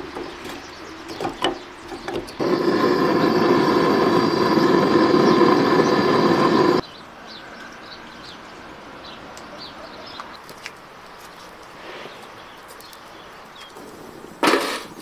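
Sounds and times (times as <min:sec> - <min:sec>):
small birds chirping: 0:00.0 - 0:13.9
loud rushing noise with hum: 0:02.4 - 0:06.8.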